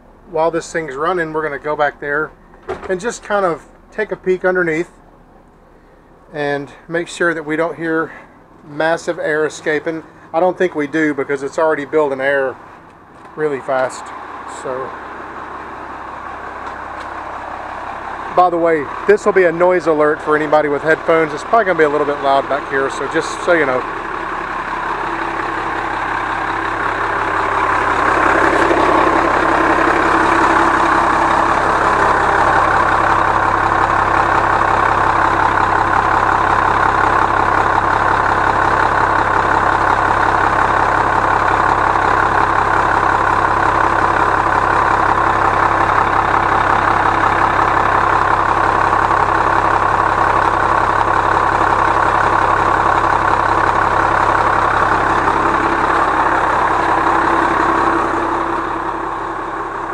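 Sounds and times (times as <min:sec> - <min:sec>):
diesel engine idling: 0:00.0 - 0:59.9
air compressor building pressure: 0:13.4 - 0:59.9.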